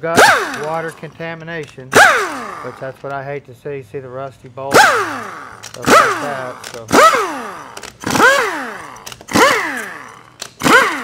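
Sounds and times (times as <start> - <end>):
pneumatic wrench bursts: 0.0 - 1.1, 1.8 - 3.0, 4.7 - 11.0.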